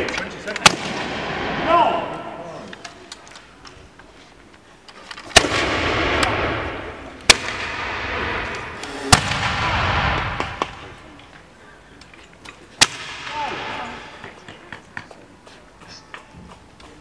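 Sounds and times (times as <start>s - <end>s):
musket shots with echo: 0.0s - 2.4s, 5.3s - 11.1s, 12.8s - 14.2s.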